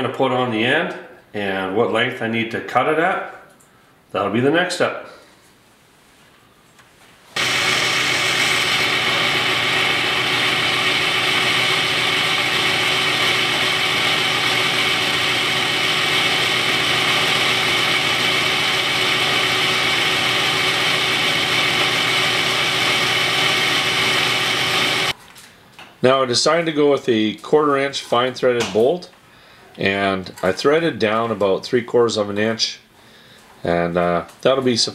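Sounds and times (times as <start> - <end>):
metal lathe motor and gear whine: 7.4 - 25.1.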